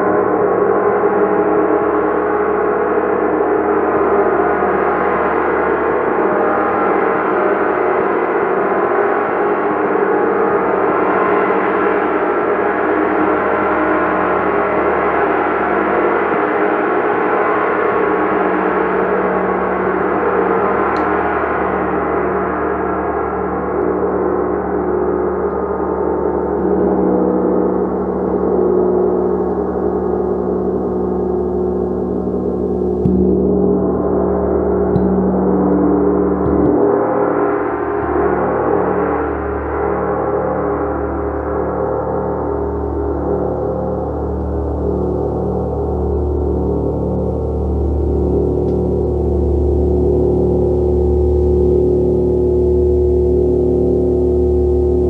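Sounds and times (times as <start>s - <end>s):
gong ringing: 32.4s - 37.0s.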